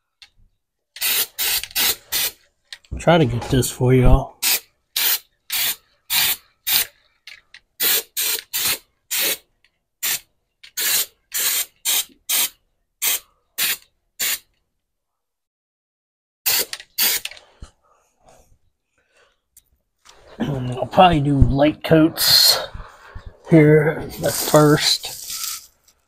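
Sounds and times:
spray can hissing bursts: 1.0s - 2.4s, 4.4s - 6.9s, 7.8s - 9.4s, 10.0s - 14.5s, 16.5s - 17.4s, 24.3s - 25.7s.

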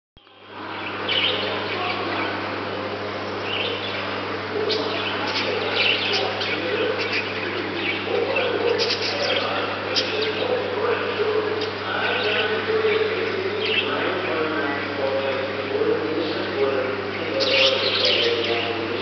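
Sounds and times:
steady low hum: 0.2s - 19.0s
budgerigars chirping: 1.0s - 2.3s, 3.4s - 10.7s, 11.5s - 14.5s, 16.2s - 19.0s.

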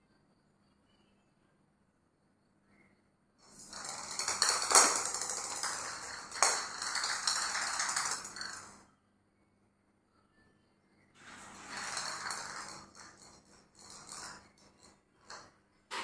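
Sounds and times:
plastic ball rattling on stone floor: 3.4s - 8.8s, 11.3s - 16.0s.

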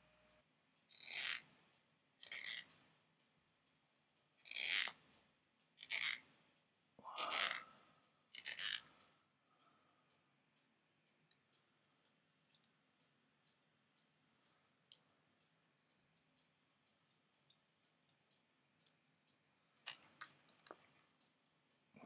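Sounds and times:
small toy parts clicking: 0.9s - 1.5s, 2.2s - 2.8s, 4.4s - 5.0s, 5.8s - 6.3s, 7.2s - 7.6s, 8.3s - 9.1s.

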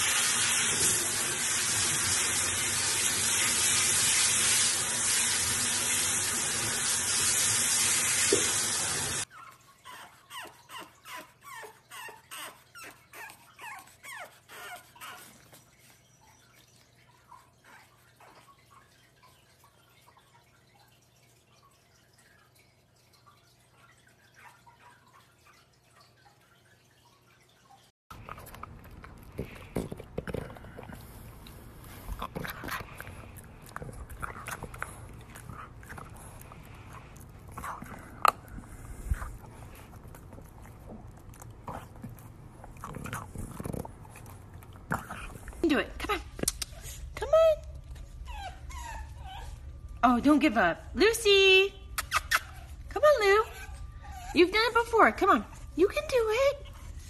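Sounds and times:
dog gnawing on a chew: 28.1s - 45.6s
puppy whimpering in high yips: 52.0s - 52.8s.

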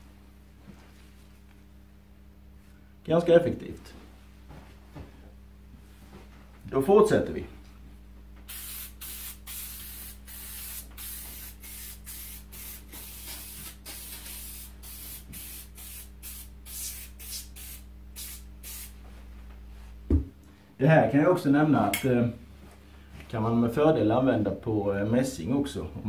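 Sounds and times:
aerosol can spraying hisses: 8.5s - 19.0s.

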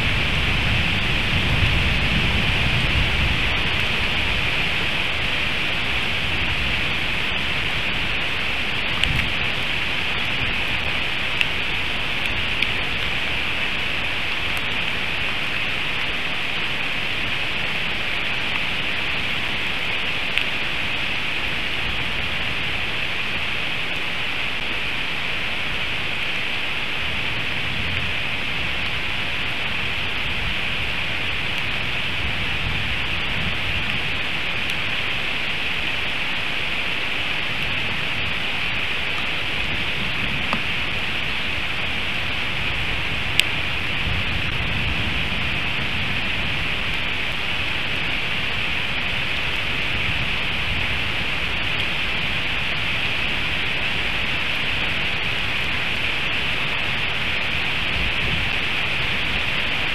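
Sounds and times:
low thunder rumble: 0.0s - 13.2s
heavy rain: 0.0s - 59.9s.

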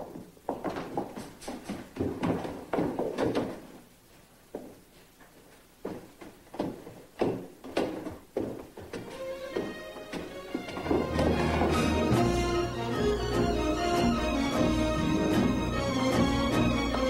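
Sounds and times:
footsteps on wooden stairs: 0.0s - 3.8s, 4.5s - 13.0s
music: 9.0s - 17.0s.

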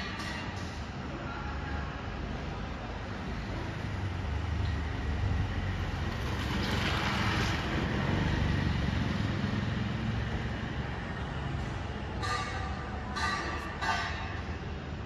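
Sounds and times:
road traffic rumble: 0.0s - 15.0s
vehicle passing by: 3.8s - 11.6s.

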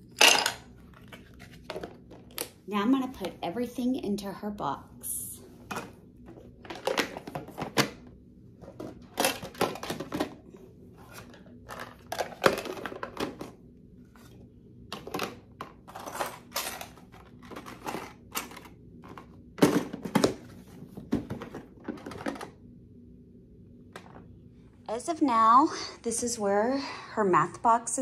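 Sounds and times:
plastic containers clattering: 0.2s - 2.5s, 5.7s - 13.6s, 14.9s - 22.6s.

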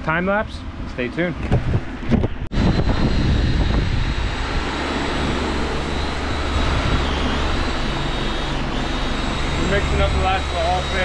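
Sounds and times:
low mechanical hum: 0.0s - 11.0s
thin high whine: 2.5s - 11.0s.

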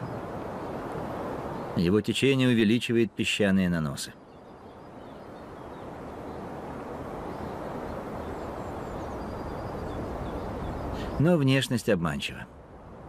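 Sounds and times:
steady rushing outdoor ambience: 0.0s - 13.0s
faint high bird chirps: 7.2s - 11.3s.

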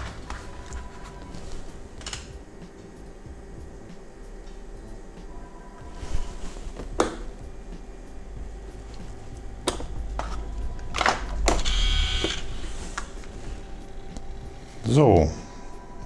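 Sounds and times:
steady low hum: 0.0s - 16.0s
gauge stepper motors buzzing: 6.8s - 16.0s.

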